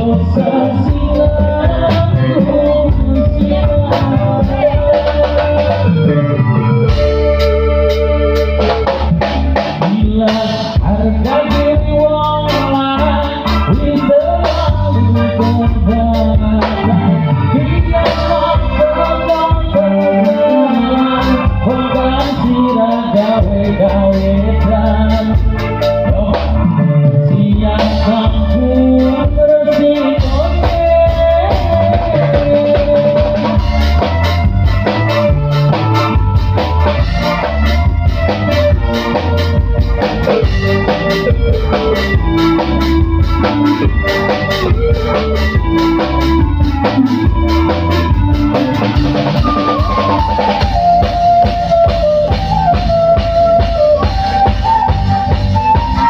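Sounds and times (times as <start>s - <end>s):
bass notes: 0.0s - 56.0s
drum kit beat: 0.0s - 56.0s
keyboard: 0.0s - 56.0s
pitch-bending lead melody: 0.0s - 56.0s
drum beat: 30.2s - 56.0s.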